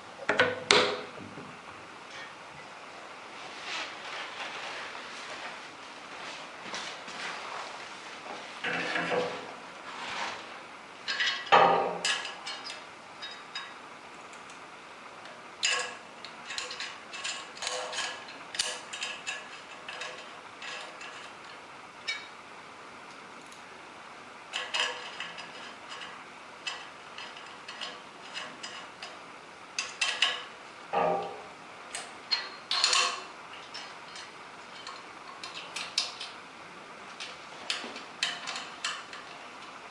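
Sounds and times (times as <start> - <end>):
metal parts clicking and rattling: 11.0 - 14.6, 15.6 - 22.3, 24.5 - 29.2, 29.8 - 36.4, 37.1 - 39.9.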